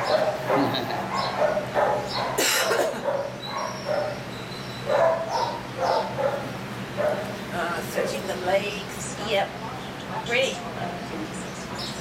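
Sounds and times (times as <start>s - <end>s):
dogs barking: 0.0s - 8.3s
steady low hum: 0.0s - 12.0s.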